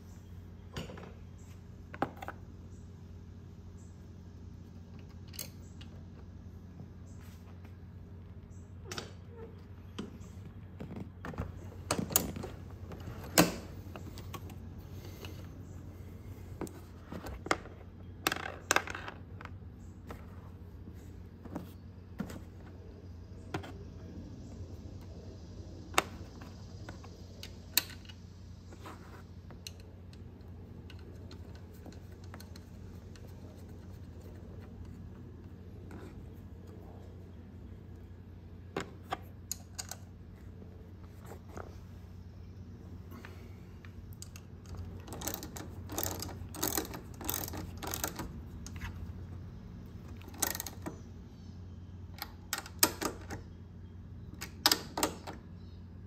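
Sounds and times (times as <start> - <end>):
steady low hum: 0.0 - 56.0
small parts clicking and tapping: 25.9 - 35.2, 38.7 - 40.2, 43.2 - 49.2, 49.9 - 51.2, 52.0 - 53.5.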